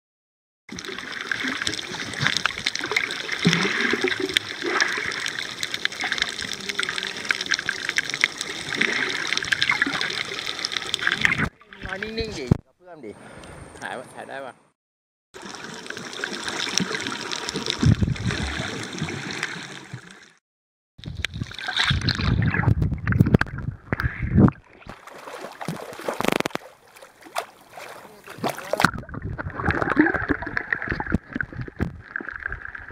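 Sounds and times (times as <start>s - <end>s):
water sloshing and gurgling: 0.7s - 12.5s, 15.4s - 20.4s, 21.0s - 32.9s
sharp clicks and crackles: 26.2s - 26.6s.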